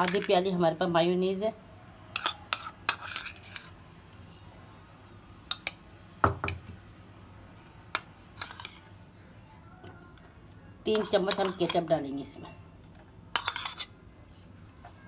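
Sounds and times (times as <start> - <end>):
spoon clinking on ceramic bowls: 2.1 - 3.7, 5.5 - 6.7, 10.9 - 12.6, 13.3 - 13.9.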